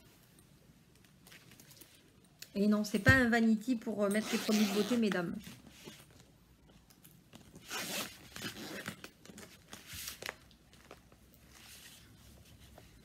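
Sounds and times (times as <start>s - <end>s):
zipper rasping open: 4.2s - 6.1s, 7.5s - 9.2s.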